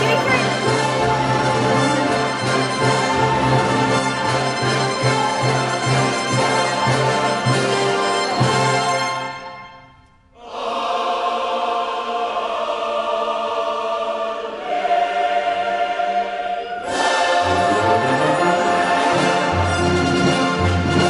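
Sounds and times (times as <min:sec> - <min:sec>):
choir singing held chords: 0:00.0 - 0:08.7, 0:10.4 - 0:20.9
orchestra with brass: 0:00.0 - 0:09.6, 0:16.9 - 0:21.0
music: 0:00.0 - 0:21.0.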